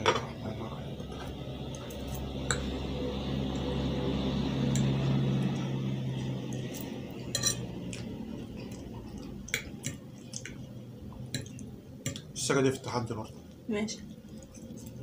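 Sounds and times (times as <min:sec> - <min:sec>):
low hum: 0:00.0 - 0:12.0
forks clinking on plates: 0:06.8 - 0:07.8.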